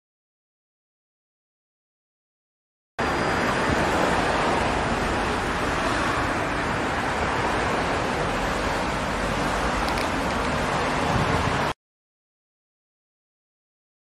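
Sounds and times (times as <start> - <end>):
cars driving past: 3.0 - 11.8.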